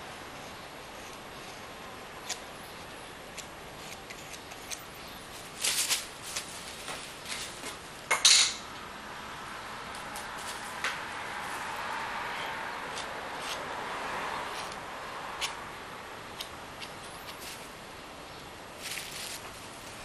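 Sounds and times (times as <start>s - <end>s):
palette knife scraping paint: 0.3s - 2.8s, 3.4s - 5.0s, 12.9s - 13.6s.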